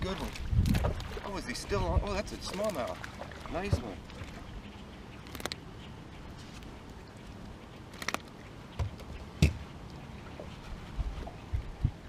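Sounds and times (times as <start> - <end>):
water noise: 0.0 - 12.0
wind: 0.0 - 12.0
clicks and knocks on a boat: 0.1 - 1.3, 2.5 - 4.5, 7.9 - 9.7
thump on a boat: 3.6 - 4.0, 8.8 - 9.7.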